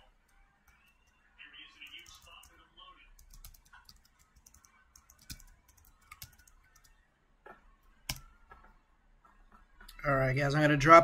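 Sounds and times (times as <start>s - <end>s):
keyboard typing and clicking: 3.2s - 6.9s, 8.0s - 8.7s.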